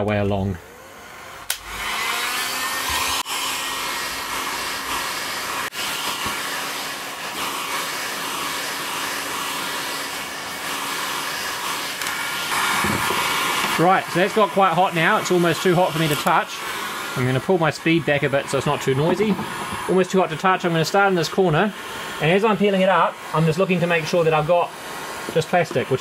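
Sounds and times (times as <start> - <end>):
heat gun fan blowing: 0.0 - 26.0.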